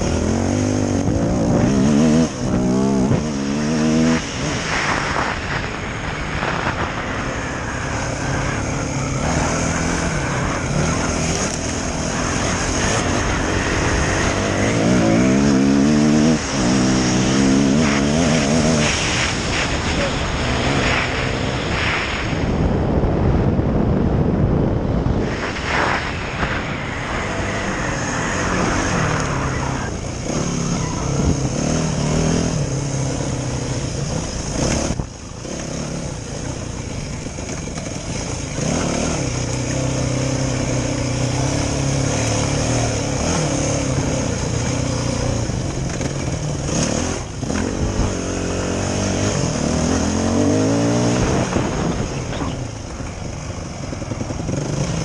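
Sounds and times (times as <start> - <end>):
dirt bike engine revving: 0.0 - 22.2, 25.0 - 53.0, 53.9 - 55.0.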